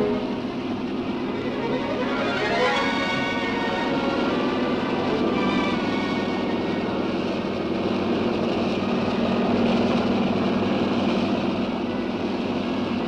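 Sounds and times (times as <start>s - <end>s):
helicopter engine and rotor: 0.3s - 13.0s
music: 1.1s - 7.4s.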